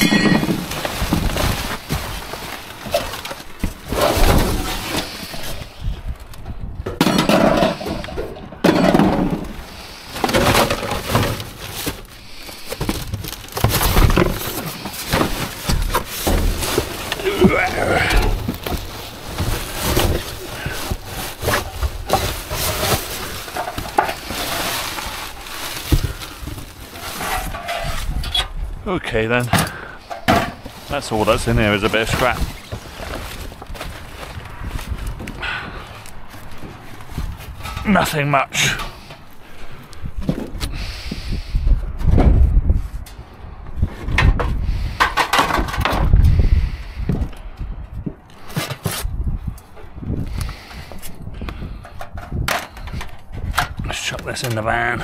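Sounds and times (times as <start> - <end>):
wooden pallet knocking and scraping: 0.0 - 5.2, 6.8 - 28.2
sheet-metal scraps clattering: 0.0 - 5.4
plastic and paper rustling: 0.0 - 6.4, 8.8 - 28.3, 29.4 - 35.4.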